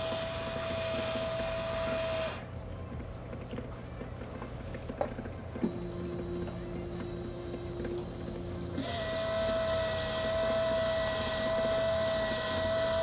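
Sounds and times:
motors whining: 0.0 - 2.5, 5.6 - 13.0.

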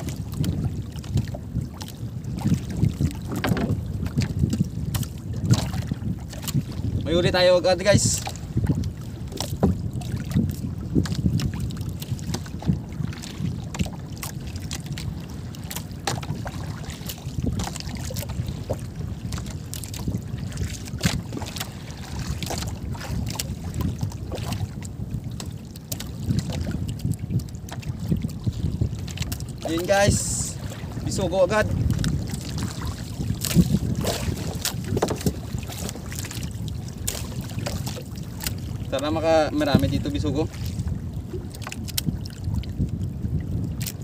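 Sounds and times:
water slapping boat hull: 0.0 - 44.0
wind buffeting microphone: 0.0 - 44.0
sharp knocks and clicks: 3.4 - 3.8.

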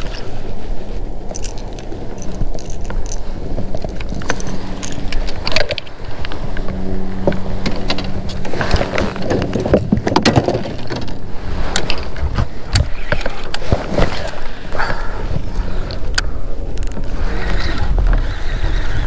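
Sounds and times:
steady low motor hum: 0.0 - 19.0
fishing gear knocks and rattles: 1.2 - 15.0.

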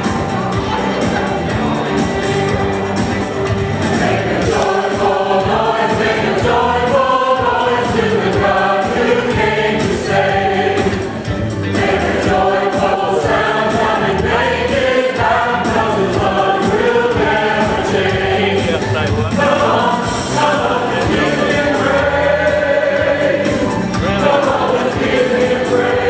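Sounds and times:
choir singing a gospel song: 0.0 - 26.0.

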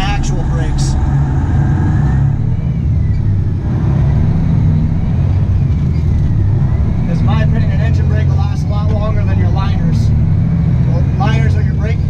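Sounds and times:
diesel engine with engine brake: 0.0 - 12.0.

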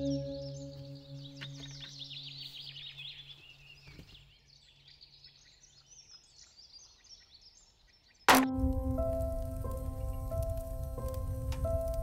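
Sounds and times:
low music drone: 0.0 - 2.7, 8.3 - 12.0
small birds chirping: 0.0 - 8.3.

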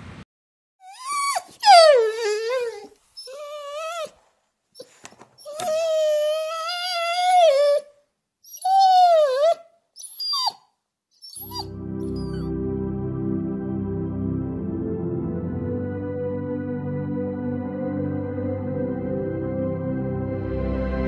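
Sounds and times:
dog howling and whining: 0.8 - 4.2, 4.8 - 7.9, 8.5 - 10.6, 11.2 - 12.4.

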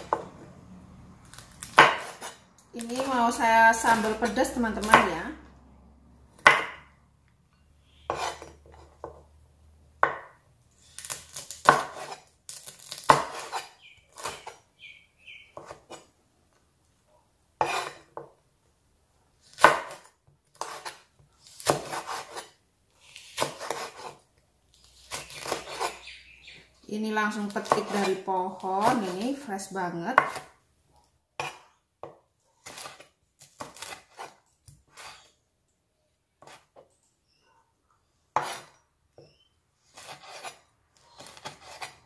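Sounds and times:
knife slicing on wooden cutting board: 8.1 - 8.6, 11.1 - 14.6, 17.6 - 18.0, 19.5 - 22.5, 23.3 - 24.2, 24.9 - 26.0, 32.6 - 35.3, 38.4 - 38.8, 39.9 - 40.6, 41.2 - 42.0.

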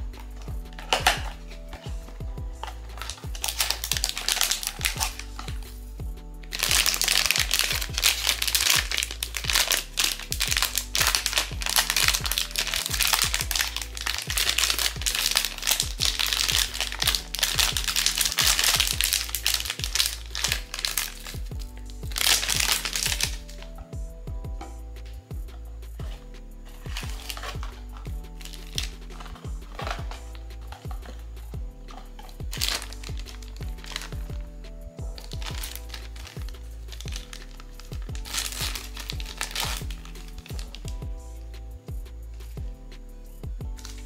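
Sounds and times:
plastic packaging crinkling: 0.0 - 1.9, 2.6 - 5.6, 6.5 - 21.5, 22.1 - 23.7, 26.9 - 31.2, 31.9 - 34.4, 35.0 - 40.9
background music: 0.0 - 44.0.

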